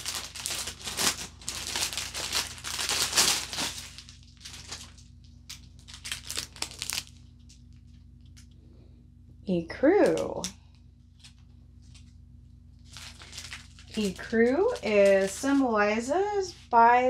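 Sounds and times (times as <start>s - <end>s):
plastic bags crinkling: 0.0s - 7.6s, 12.8s - 16.8s.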